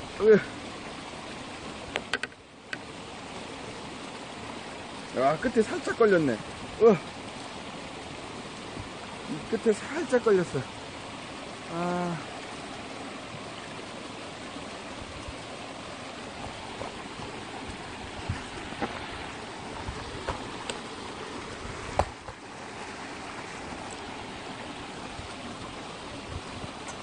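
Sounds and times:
water rushing into reservoir: 0.0s - 27.0s
faint clicks and knocks: 1.9s - 2.8s.

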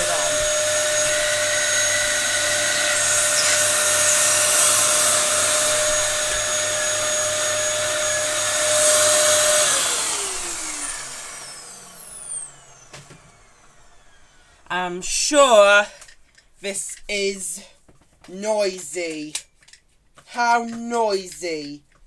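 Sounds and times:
vacuum cleaner whining: 0.0s - 16.0s.

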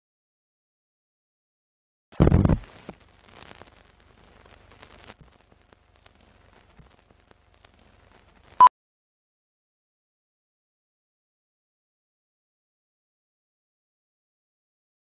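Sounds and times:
film projector crackle and ticks: 2.9s - 8.6s.

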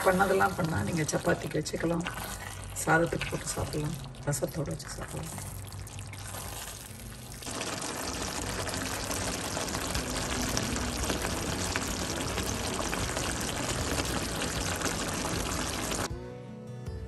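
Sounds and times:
chicken sizzling in oil: 5.3s - 16.1s.

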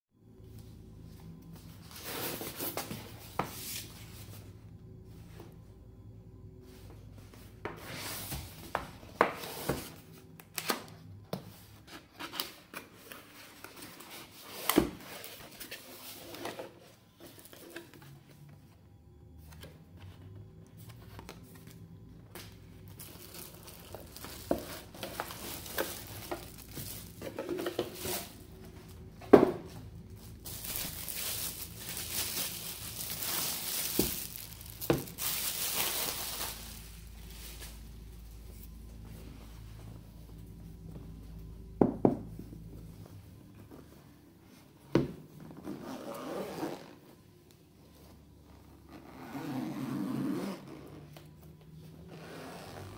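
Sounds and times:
plastic wrap crinkling: 22.9s - 29.1s, 30.0s - 38.2s.

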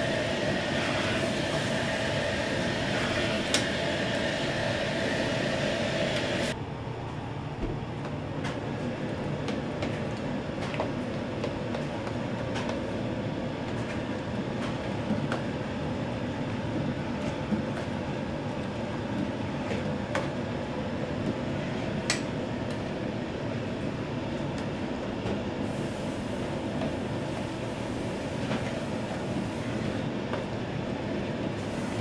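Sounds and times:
gas burner roar and sizzle: 0.0s - 32.0s.

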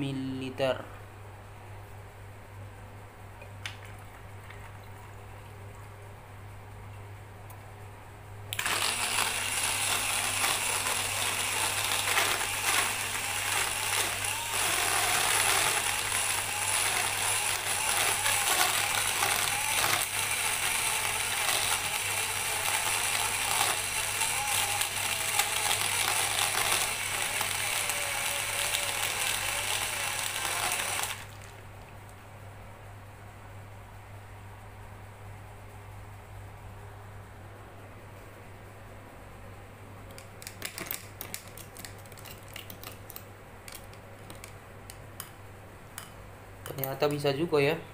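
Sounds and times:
blender motor whirring: 8.5s - 31.6s.

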